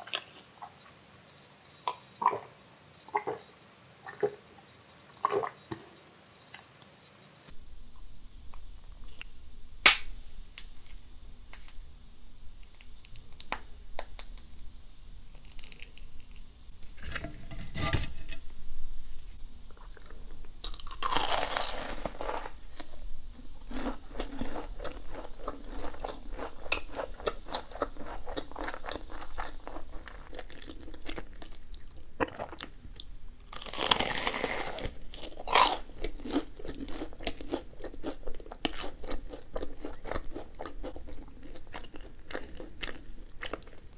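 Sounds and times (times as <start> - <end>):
chewing close to microphone: 34.6 - 43.9.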